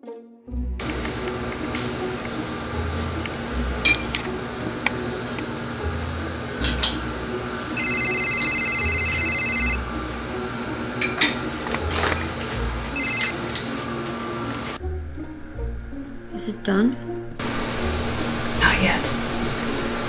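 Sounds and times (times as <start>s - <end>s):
soft background music: 0.0s - 20.0s
phone ringtone trill: 7.7s - 9.9s, 12.9s - 13.4s.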